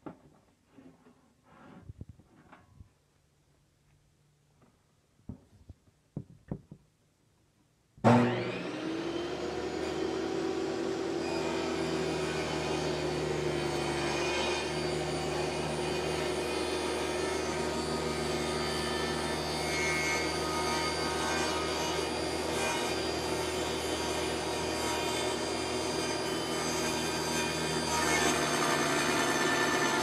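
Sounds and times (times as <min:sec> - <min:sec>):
table saw motor whining: 0:08.0 - 0:30.0.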